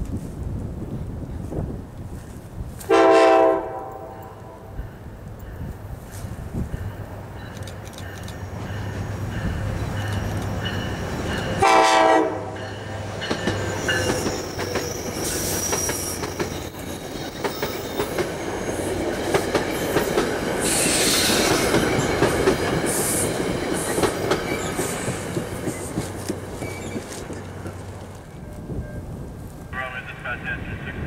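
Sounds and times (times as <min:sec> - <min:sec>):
train running noise: 0:00.0 - 0:31.0
train horn blast: 0:02.9 - 0:04.8, 0:11.6 - 0:12.7.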